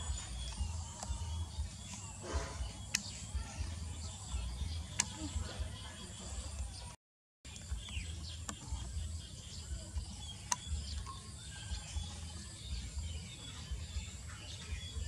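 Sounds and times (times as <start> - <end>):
faint bird chirps: 0.0 - 15.0
sharp clicks: 2.8 - 3.4, 4.8 - 5.3, 10.0 - 11.2.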